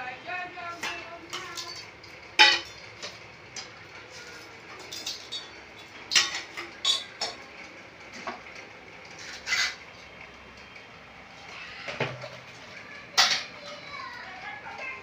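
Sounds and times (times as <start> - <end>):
metal utensils clinking: 0.7 - 7.6, 9.1 - 9.8, 13.0 - 15.0.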